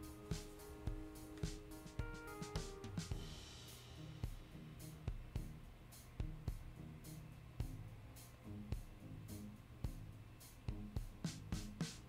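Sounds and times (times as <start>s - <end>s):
background music: 0.0s - 12.0s
drum beat: 0.0s - 12.0s
low bass notes: 2.9s - 11.8s.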